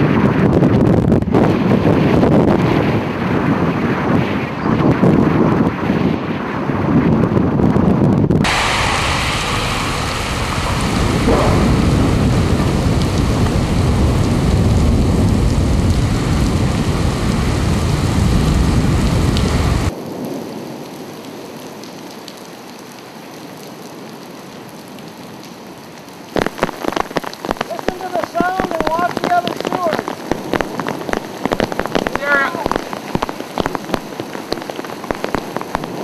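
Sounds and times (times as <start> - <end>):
heavy rain pouring: 0.0 - 36.0
loud low rumble: 8.4 - 19.9.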